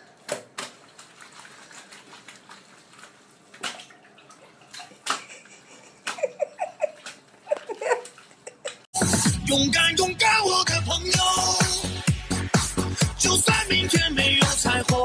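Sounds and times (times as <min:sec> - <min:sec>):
water splashing in sink: 0:00.0 - 0:08.8.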